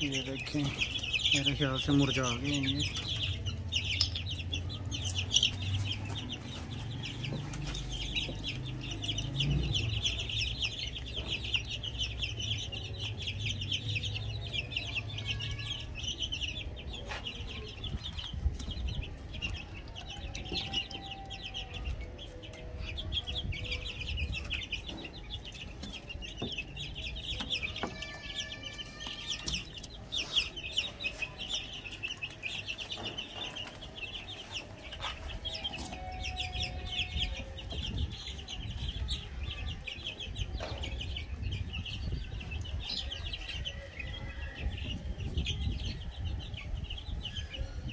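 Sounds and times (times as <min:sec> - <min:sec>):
chicks peeping: 0:00.0 - 0:47.9.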